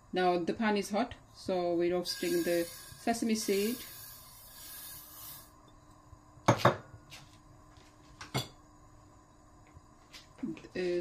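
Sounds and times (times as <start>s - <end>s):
seeds pouring into frying pan: 2.1s - 5.5s.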